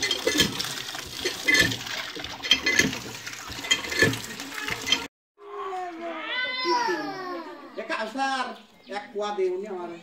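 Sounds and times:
water pouring from pump spout: 0.0s - 5.1s.

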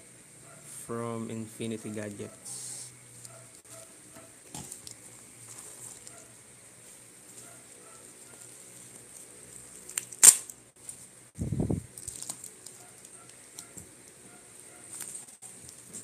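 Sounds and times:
plastic wrap crinkling: 3.2s - 11.1s, 11.8s - 16.0s.

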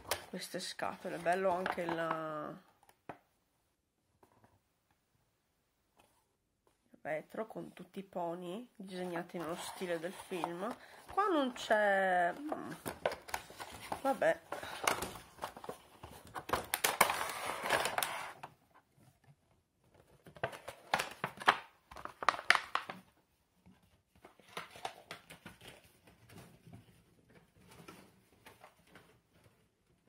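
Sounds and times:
cardboard and plastic crinkling: 8.9s - 18.6s, 20.0s - 23.1s.

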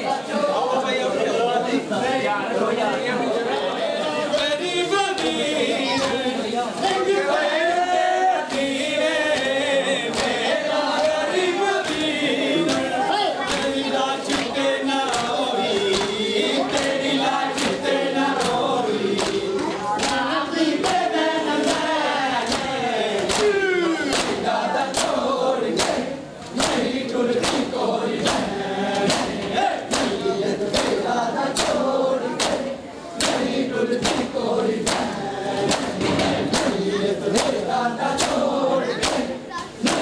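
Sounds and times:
men chanting a lament: 0.0s - 40.0s
hand slaps on bare chests: 22.5s - 25.2s, 25.8s - 26.0s, 26.6s - 31.0s, 31.6s - 31.8s, 32.4s - 36.8s, 37.4s - 37.6s, 38.2s - 38.4s, 39.0s - 40.0s.

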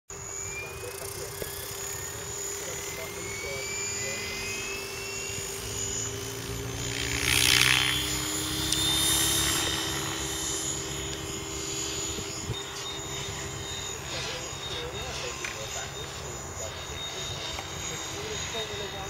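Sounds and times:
helicopter motor and rotor whine: 0.1s - 19.0s.

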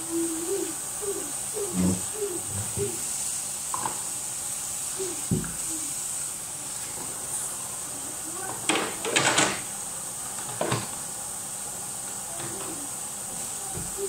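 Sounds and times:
tap running: 5.3s - 5.6s.

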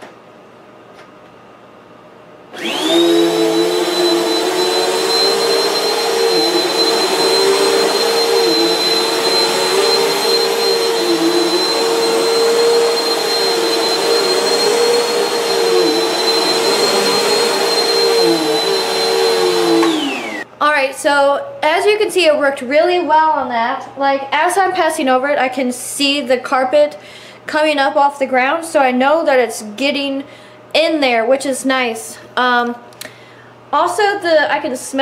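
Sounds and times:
vacuum cleaner motor whining: 2.5s - 20.5s.

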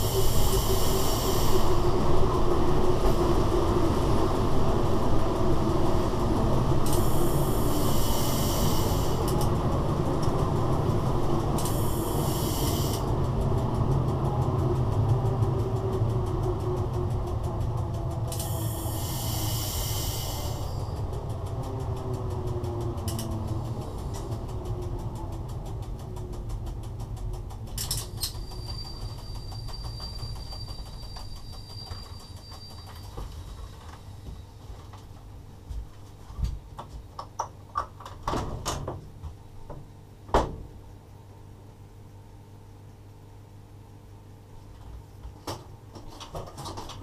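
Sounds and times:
loud hiss: 0.0s - 2.2s, 6.9s - 9.3s, 11.6s - 13.1s, 18.4s - 20.9s
fast regular ticking: 0.0s - 34.0s
locomotive cab low hum: 0.0s - 42.5s.

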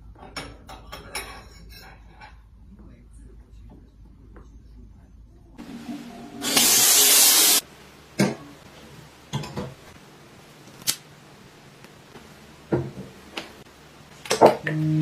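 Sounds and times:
hissing spray burst: 6.4s - 7.6s.

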